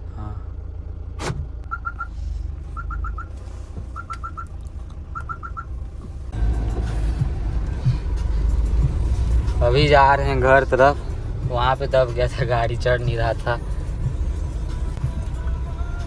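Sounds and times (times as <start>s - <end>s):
car engine rumbling: 0.0s - 16.0s
reversing beeper: 1.7s - 5.8s.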